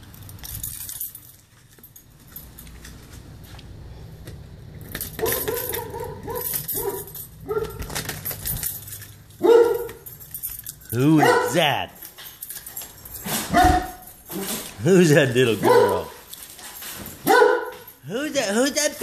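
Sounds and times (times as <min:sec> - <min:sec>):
keys jangling in lock: 0:00.0 - 0:03.2, 0:04.7 - 0:19.0
dogs whining: 0:05.0 - 0:10.3, 0:13.1 - 0:14.7.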